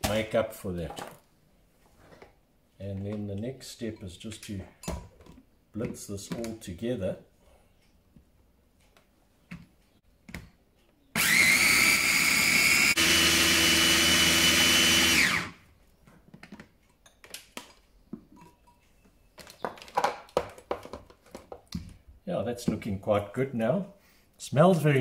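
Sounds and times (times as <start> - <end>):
chopper motor grinding spices: 11.2 - 15.6.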